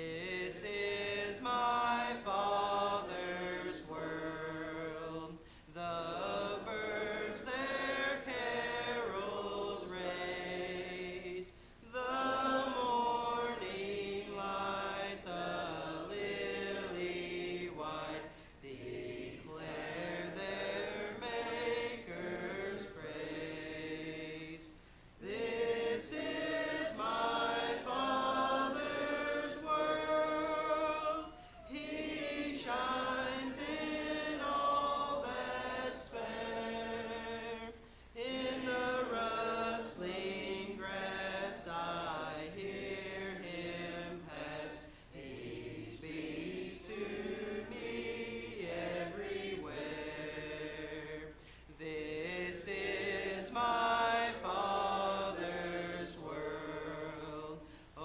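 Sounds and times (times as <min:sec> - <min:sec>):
congregation singing a hymn: 0:00.0 - 0:58.0.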